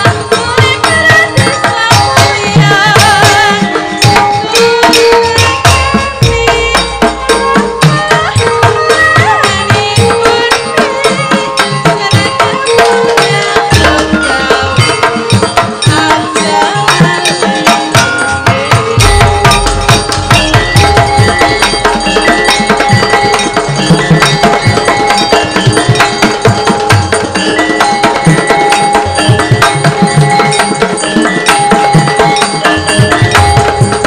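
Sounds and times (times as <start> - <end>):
ringing metallophones and gongs: 0.0 - 34.0
hand drum beating quick strokes: 18.5 - 27.4.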